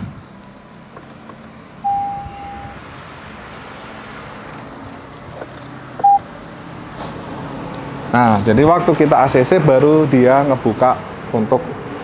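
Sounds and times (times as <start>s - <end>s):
short electronic beep: 1.8s - 2.8s, 6.0s - 6.2s.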